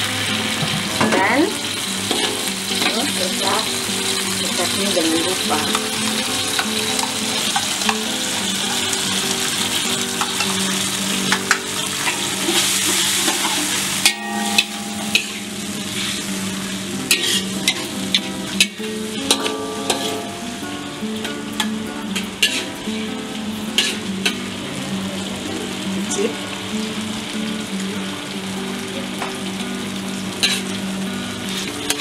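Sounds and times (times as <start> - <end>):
food sizzling: 0.0 - 32.0
metal spatula scraping wok: 15.1 - 16.4, 17.1 - 20.4, 21.6 - 22.8, 23.7 - 24.1, 30.4 - 30.8.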